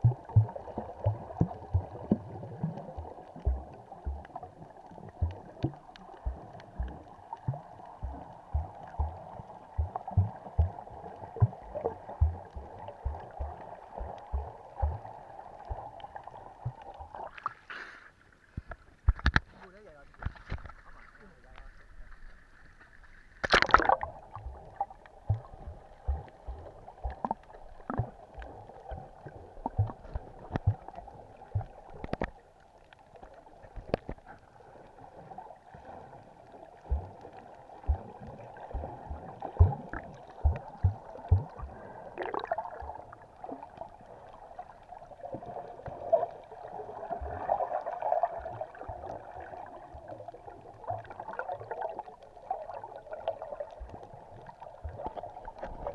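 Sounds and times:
low knocks and thumps: 9.8 - 10.8, 25.2 - 28.2
splash into water: 23.4 - 24.2.

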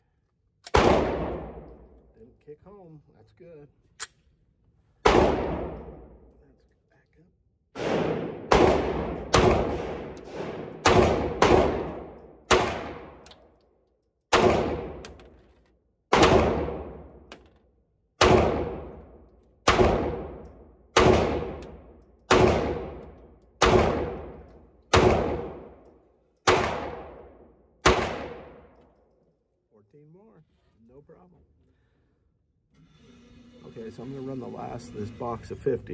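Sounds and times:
pistol shots echoing indoors: 0.6 - 2.1, 5.0 - 6.4, 7.7 - 29.6.

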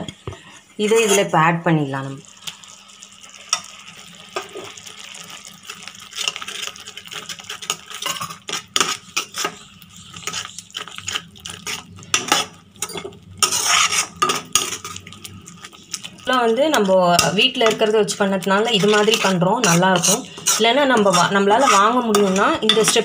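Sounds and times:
steel spatula scraping a pan: 0.5 - 1.3, 6.2 - 23.0.

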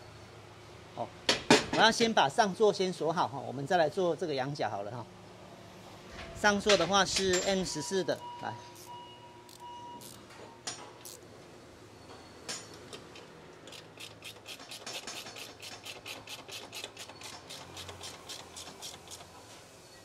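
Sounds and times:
ratchet wrench clicking: 9.5 - 10.2, 13.7 - 19.3.

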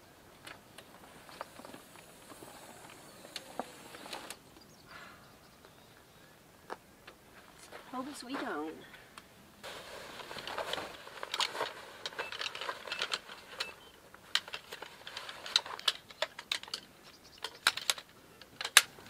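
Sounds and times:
gear rustling: 9.6 - 19.0
tripod latches clicking: 14.4 - 19.0.

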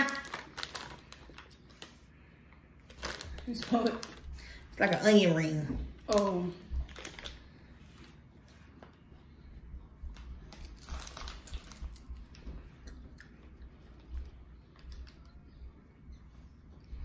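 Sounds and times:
foil snack packet crinkling: 0.0 - 2.1, 2.8 - 5.4, 6.0 - 8.1, 10.1 - 13.4
crunchy snack chewing: 10.2 - 15.3.

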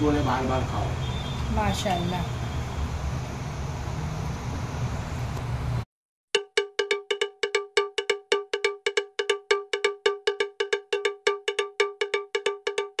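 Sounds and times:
rapid metallic strikes: 6.4 - 13.0.

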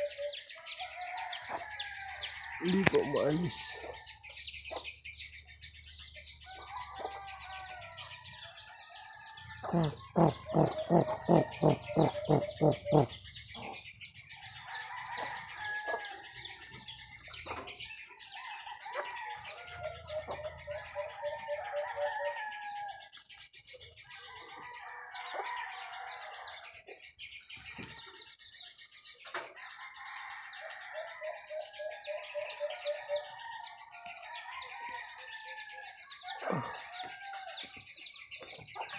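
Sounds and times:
small birds chirping: 0.0 - 38.9
chicken clucking: 9.6 - 13.8.

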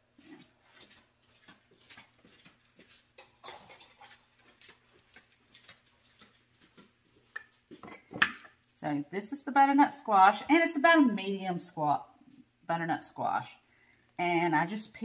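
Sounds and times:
sandal footsteps on tile: 0.3 - 3.4, 4.0 - 7.9.

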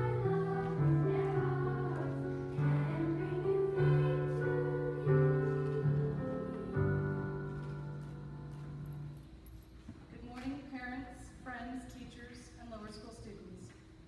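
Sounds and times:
girls' choir singing held notes: 0.0 - 8.4
piano accompaniment: 0.0 - 9.4.

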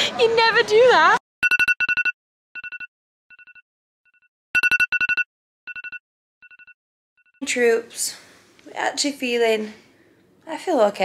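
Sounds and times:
electronic telephone ringtone: 1.4 - 3.6, 4.6 - 6.8.

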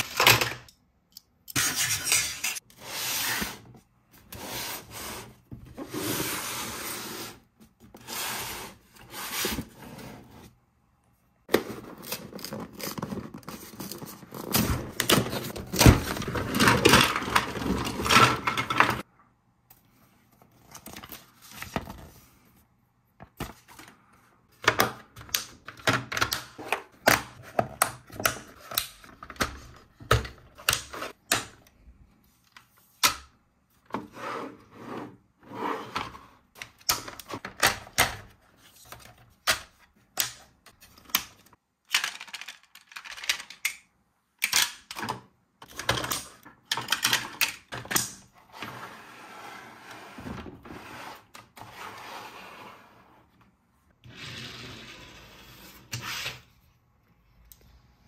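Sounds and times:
plastic track pieces clicking: 41.9 - 43.8.

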